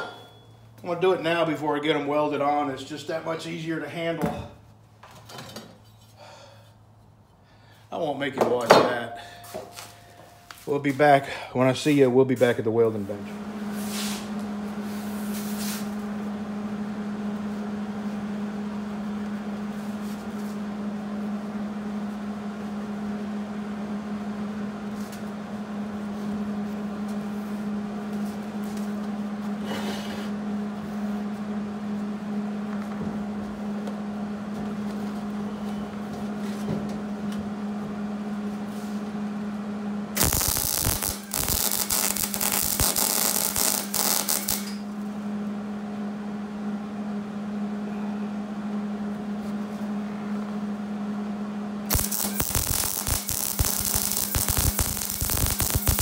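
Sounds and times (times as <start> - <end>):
steady low hum: 0.0 - 56.0
welding arc crackling: 40.2 - 44.9, 51.9 - 56.0.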